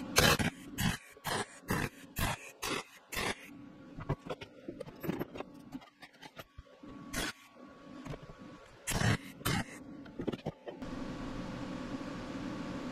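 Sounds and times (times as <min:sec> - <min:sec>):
faint steady hum: 0:00.0 - 0:12.9.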